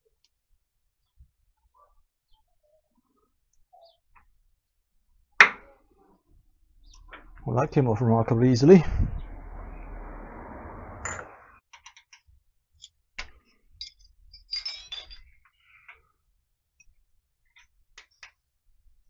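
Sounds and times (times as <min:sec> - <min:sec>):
steady rushing noise: 0:06.8 - 0:11.6
small metal parts clinking: 0:13.8 - 0:15.5.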